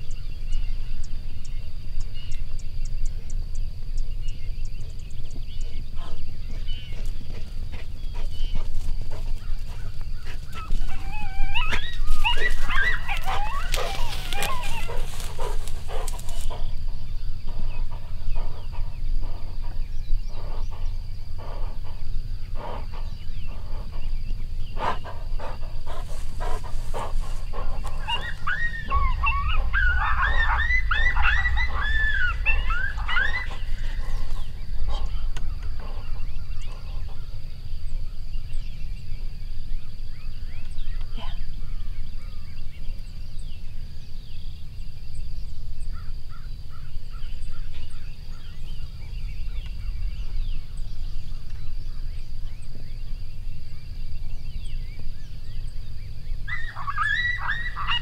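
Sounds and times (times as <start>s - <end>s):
steady low rumble: 0.0s - 56.8s
dog and coyote yelping: 9.4s - 16.8s, 24.8s - 37.3s, 56.4s - 58.0s.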